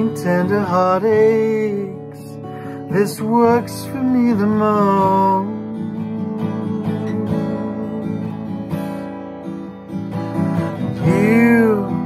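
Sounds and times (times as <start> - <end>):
person singing: 0.0 - 8.4, 10.8 - 12.0
acoustic guitar strumming: 0.0 - 12.0.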